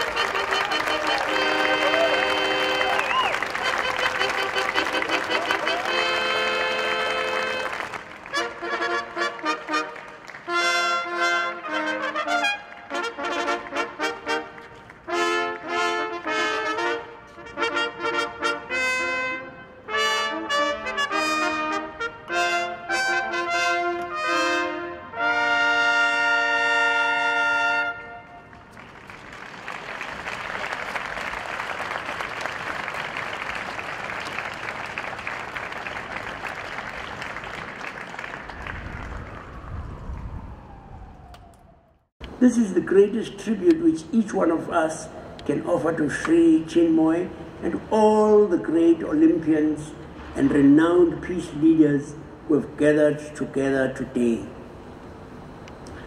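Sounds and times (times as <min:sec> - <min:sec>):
applause: 0:00.0 - 0:10.8, 0:28.4 - 0:39.6
trumpet fanfare: 0:00.0 - 0:28.5.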